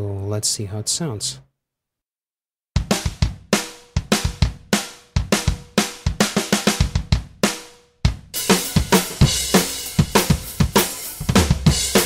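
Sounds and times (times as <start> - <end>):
kick and snare drum loop: 2.8 - 12.0
cymbals and hi-hat: 8.4 - 12.0.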